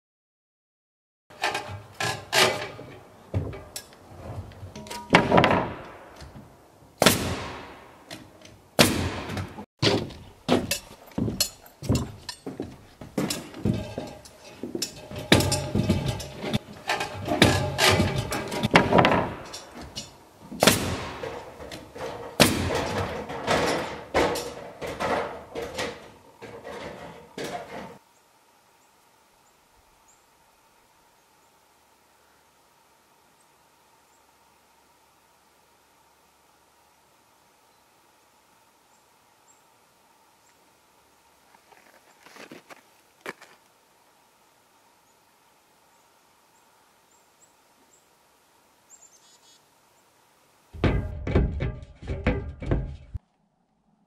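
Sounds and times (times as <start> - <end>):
knocks thumps and bangs: 8.8 - 27.8, 50.8 - 53.2
faint steady hum: 22.6 - 50.7.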